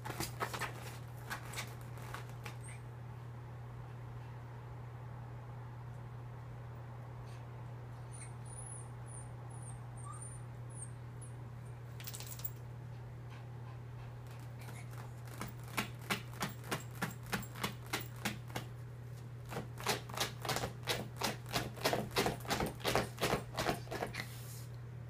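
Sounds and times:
dog claws scratching fabric: 0.0 - 2.7, 14.3 - 18.8, 19.4 - 24.4.

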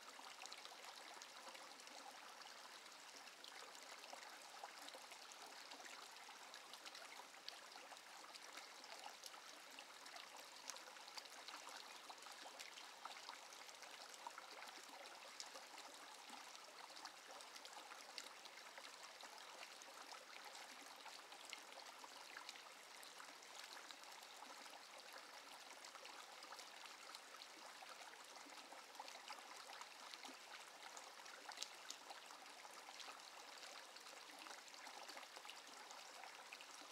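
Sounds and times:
brook trickling over rocks: 0.0 - 36.9.

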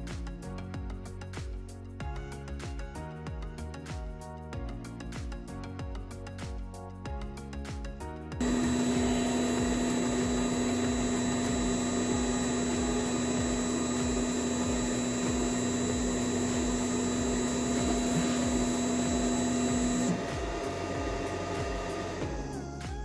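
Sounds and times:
stepper motor hum: 8.4 - 22.7.

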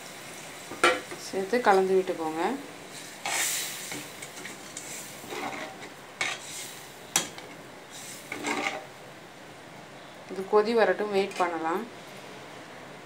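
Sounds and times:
ladle scraping a metal pan: 3.0 - 6.8, 7.9 - 8.9.

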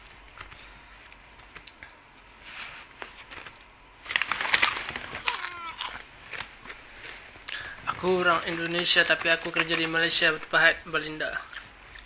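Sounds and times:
plastic snack packet crinkling: 3.0 - 12.0.

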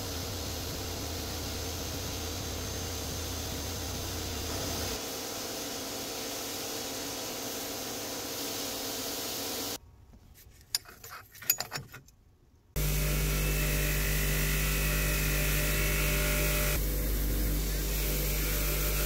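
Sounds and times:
metal wrench parts clicking: 10.6 - 12.1
bench grinder humming: 12.8 - 19.0.

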